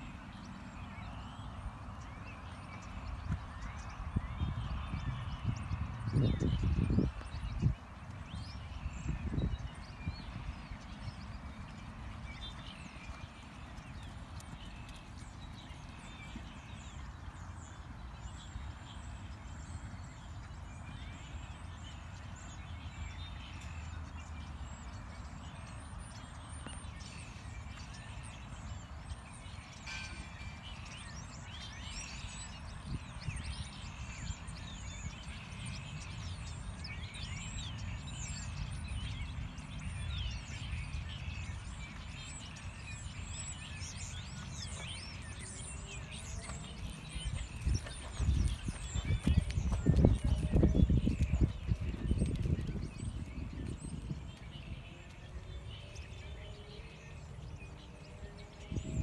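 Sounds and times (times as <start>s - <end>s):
hoofbeats on sand: 10.1s - 18.6s, 43.8s - 57.0s.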